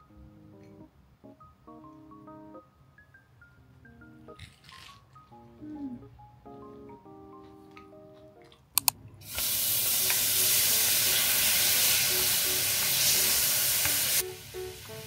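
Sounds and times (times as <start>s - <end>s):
soft music: 0.0s - 15.0s
sharp clicks: 8.8s - 9.0s
meat sizzling in hot oil: 9.3s - 15.0s.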